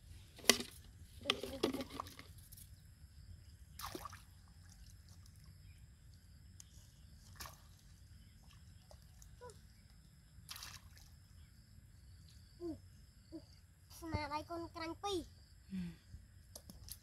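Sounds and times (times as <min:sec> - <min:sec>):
water sloshing and splashing: 0:03.7 - 0:05.7, 0:07.1 - 0:09.4.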